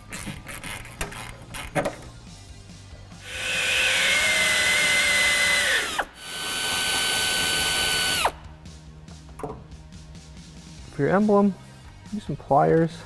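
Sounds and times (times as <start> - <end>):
air ratchet whining: 3.2 - 8.4.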